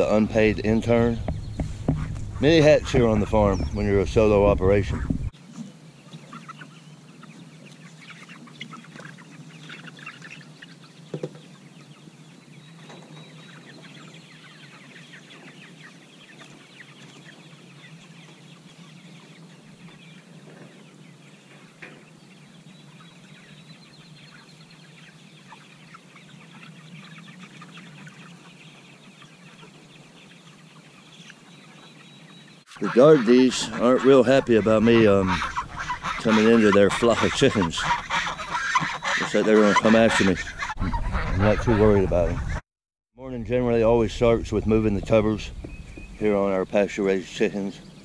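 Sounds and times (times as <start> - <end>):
chickens clucking and peeping: 0.0 - 42.6, 43.4 - 48.0
sharp knock: 1.2 - 2.3.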